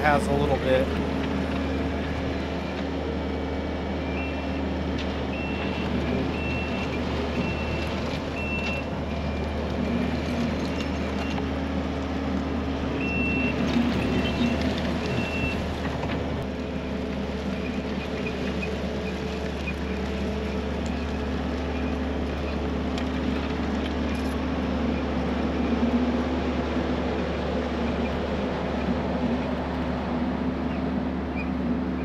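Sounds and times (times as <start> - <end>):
diesel engine running: 0.0 - 32.0.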